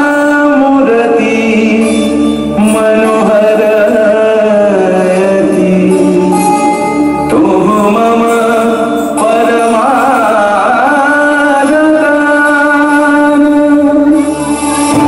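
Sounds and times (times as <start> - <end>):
music: 0.0 - 15.0
person singing in chant style: 0.0 - 15.0.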